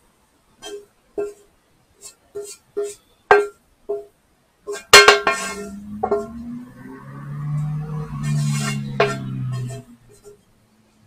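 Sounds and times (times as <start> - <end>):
plucked string notes: 5.0 - 10.4
sustained low notes: 5.5 - 10.2.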